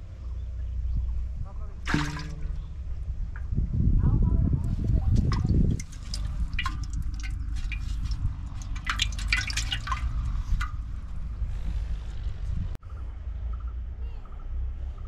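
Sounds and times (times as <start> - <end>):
steady low rumble: 0.0 - 14.0
water dripping and splashing: 1.8 - 2.9, 5.0 - 11.7.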